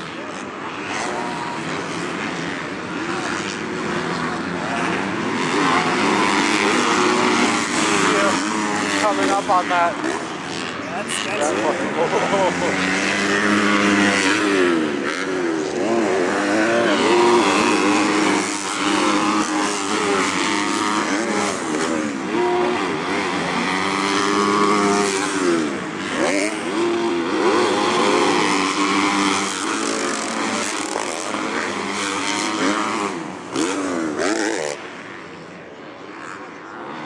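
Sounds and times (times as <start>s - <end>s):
motocross bike engines revving: 0.0s - 37.0s.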